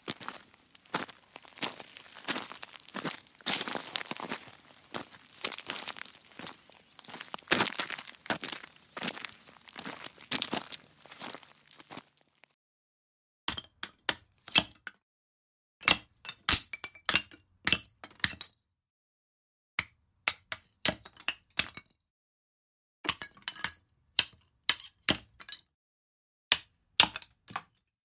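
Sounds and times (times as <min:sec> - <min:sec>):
footsteps on loose stones: 0:00.0 - 0:12.5.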